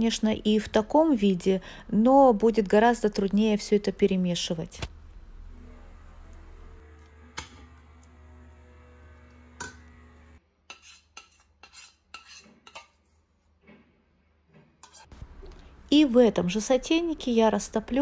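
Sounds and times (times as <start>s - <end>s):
low hum: 4.9s - 10.4s
spoon scraping into bowl: 10.7s - 13.2s, 14.8s - 15.2s
spoon stirring in saucepan: 10.7s - 13.2s, 14.8s - 15.6s.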